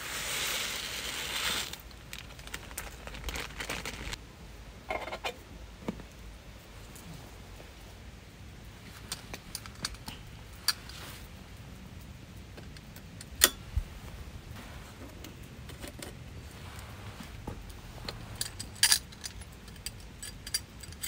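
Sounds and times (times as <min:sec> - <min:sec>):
metal camping gear clinking: 0:08.8 - 0:11.3, 0:12.6 - 0:14.0, 0:15.1 - 0:21.0.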